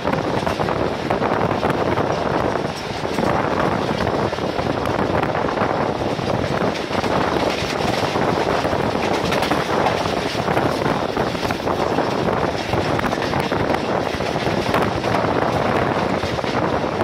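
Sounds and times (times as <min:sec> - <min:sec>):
train coach rattling: 0:00.0 - 0:17.0
train coach running noise: 0:00.0 - 0:17.0
wind rushing over microphone: 0:00.0 - 0:17.0.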